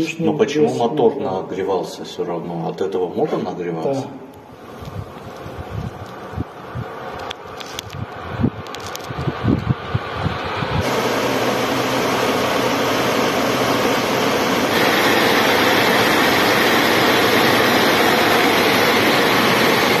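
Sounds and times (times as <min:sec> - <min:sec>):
electric blower running: 0:08.8 - 0:20.0.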